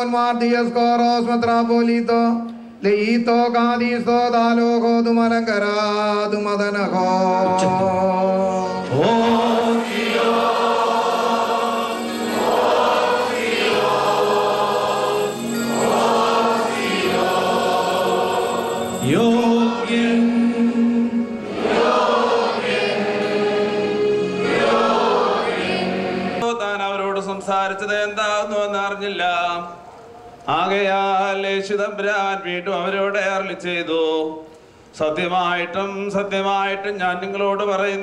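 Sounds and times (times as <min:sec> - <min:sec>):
choir chanting a hymn: 0:06.8 - 0:29.8.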